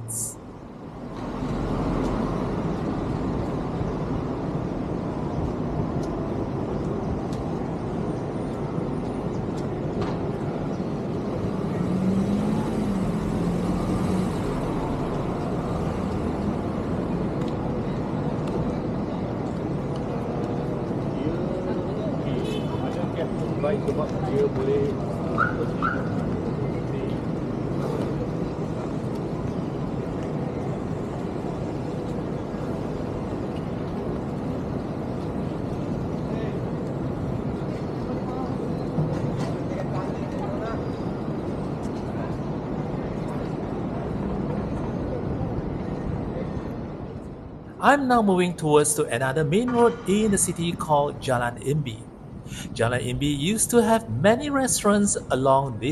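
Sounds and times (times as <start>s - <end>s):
low rumble of city traffic: 0.0s - 55.9s
passing cars: 0.0s - 55.9s
vehicle engine passing by: 11.5s - 15.1s.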